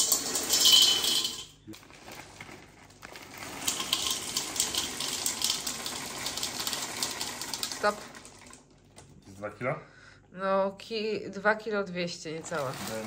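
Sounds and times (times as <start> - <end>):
frozen berries rattling into bowl: 0.0 - 8.7, 12.4 - 13.0
plastic bag rustle: 1.7 - 4.4, 12.4 - 13.0.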